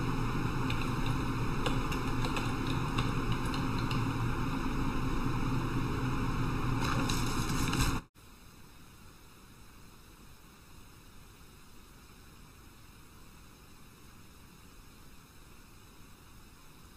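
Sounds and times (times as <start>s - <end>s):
low hum: 0.0s - 8.1s
background hiss: 7.0s - 16.9s.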